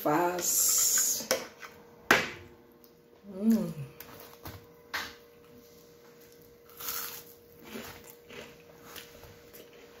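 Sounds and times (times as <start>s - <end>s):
person chewing food: 5.4s - 10.0s.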